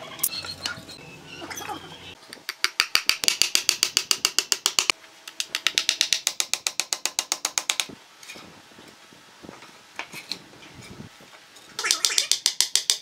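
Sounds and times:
hammer driving nails into wood: 0:02.5 - 0:07.9.

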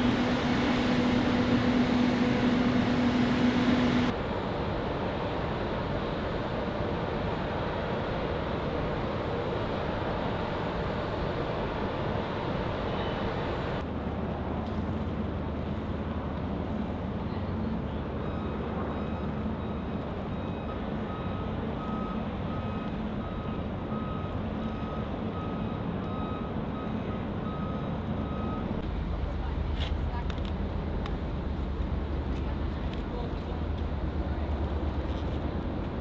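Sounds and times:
outdoor rumble and hiss: 0:00.0 - 0:36.0
vehicle reversing alarm beeps: 0:18.1 - 0:29.6.

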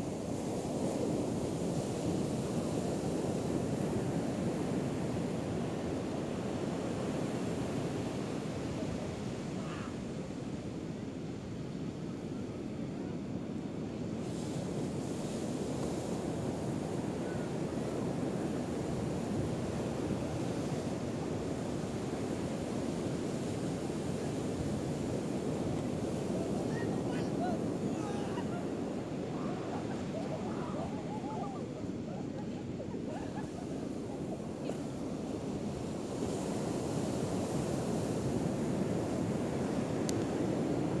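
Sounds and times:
ocean surf breaking: 0:14.2 - 0:41.0.

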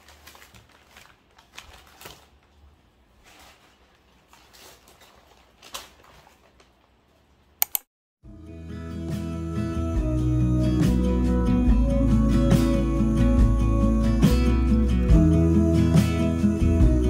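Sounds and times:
paper bags rustling: 0:00.0 - 0:07.0.

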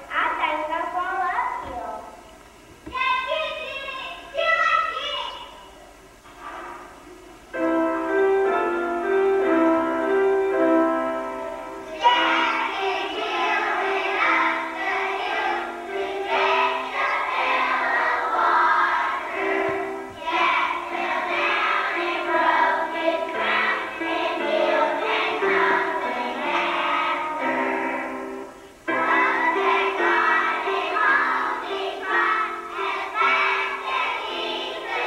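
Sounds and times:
piano accompaniment: 0:06.8 - 0:35.0
children singing together: 0:08.5 - 0:35.0.

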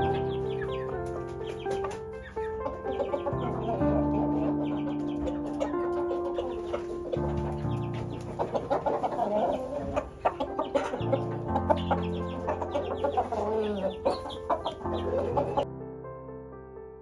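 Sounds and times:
background music of held chords: 0:00.0 - 0:17.0
rooster clucking: 0:02.7 - 0:15.6.

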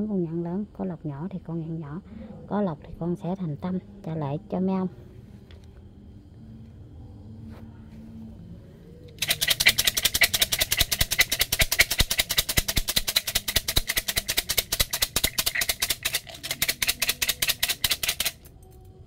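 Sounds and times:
sticks rattling in a cup: 0:09.2 - 0:18.9.

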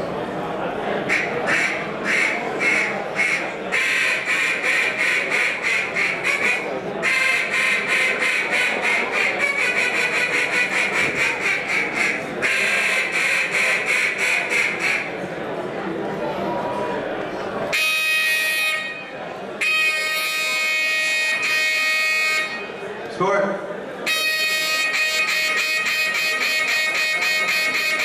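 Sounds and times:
duck call quacking: 0:01.1 - 0:15.2, 0:19.6 - 0:22.6, 0:24.1 - 0:28.0.

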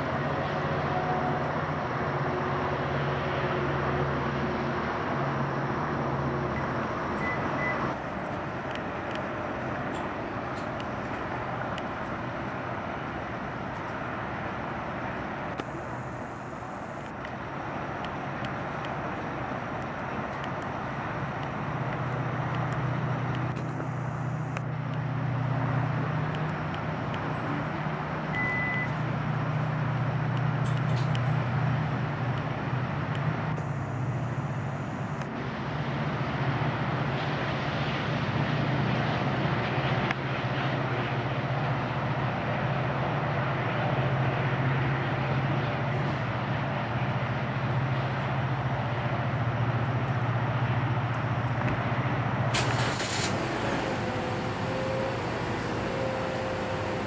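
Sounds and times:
low engine drone: 0:00.0 - 0:57.0
traffic noise: 0:00.0 - 0:57.0
high beep: 0:06.6 - 0:07.8, 0:28.4 - 0:29.0.

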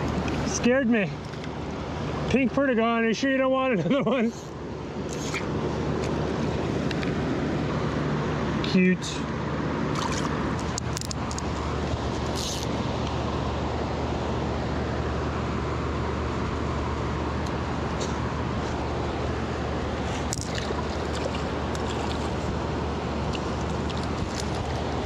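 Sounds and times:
small clicks and splashes: 0:01.2 - 0:01.6, 0:09.9 - 0:11.5, 0:20.3 - 0:22.5, 0:23.2 - 0:24.9
river water flowing over rocks: 0:17.6 - 0:25.0.

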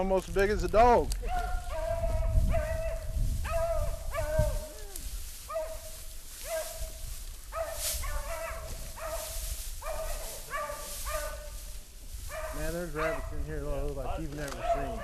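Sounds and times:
dogs yipping barks: 0:01.2 - 0:04.8, 0:05.5 - 0:11.6, 0:12.3 - 0:13.4, 0:14.5 - 0:15.0.

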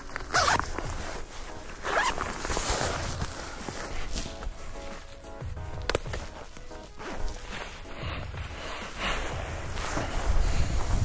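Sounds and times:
background music: 0:00.0 - 0:11.0
clothing rustling: 0:00.0 - 0:11.0.

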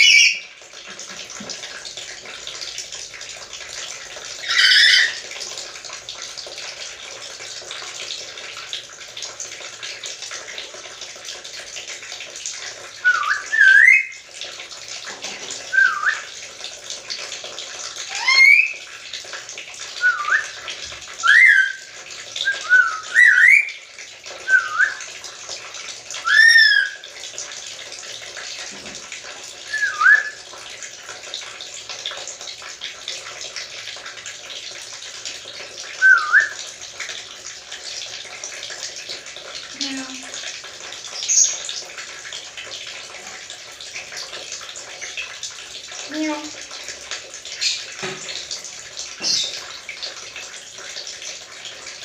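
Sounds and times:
parrot whistling: 0:00.0 - 0:00.4, 0:04.4 - 0:05.2, 0:13.0 - 0:14.2, 0:15.7 - 0:16.3, 0:18.1 - 0:18.8, 0:21.2 - 0:21.8, 0:22.5 - 0:23.7, 0:26.2 - 0:27.0, 0:29.7 - 0:30.4, 0:36.0 - 0:36.6.

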